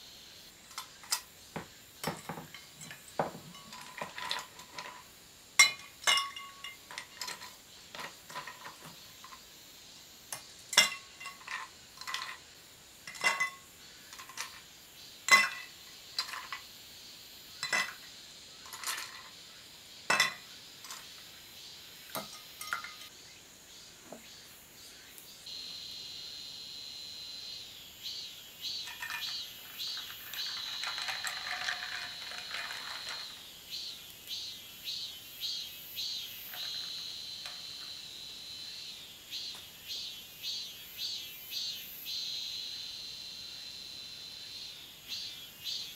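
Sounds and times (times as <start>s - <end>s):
ice cubes clinking into glass: 2.0s - 5.0s, 5.6s - 9.0s, 10.7s - 12.4s, 13.1s - 13.6s, 15.3s - 16.6s, 17.6s - 18.0s, 18.7s - 19.3s, 20.1s - 21.0s, 22.2s - 23.1s, 28.8s - 33.4s.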